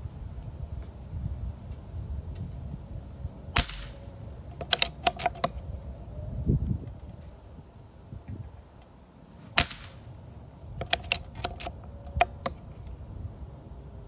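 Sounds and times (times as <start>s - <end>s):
pellet rifle shot with hiss: 3.6s - 4.0s, 9.5s - 10.1s
sharp metallic clicks: 3.6s - 5.6s, 9.6s - 10.0s, 10.8s - 12.8s.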